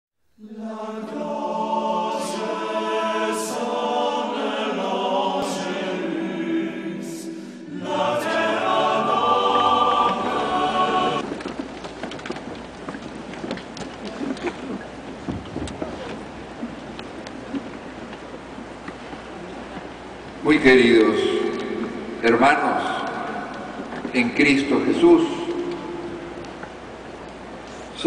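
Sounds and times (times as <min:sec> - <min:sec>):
choir singing sacred music: 0:00.4 - 0:11.3, 0:20.4 - 0:26.9
rough background noise: 0:00.4 - 0:28.0.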